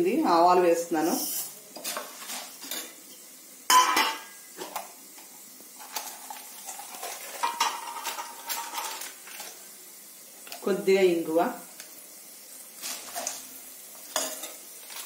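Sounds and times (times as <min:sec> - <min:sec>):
faint sizzle: 0:00.0 - 0:15.0
spoon scraping a pot: 0:01.1 - 0:03.0.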